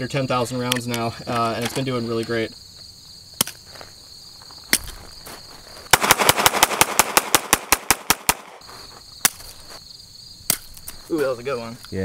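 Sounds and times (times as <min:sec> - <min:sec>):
pistol shots rapid string: 0:05.9 - 0:08.6.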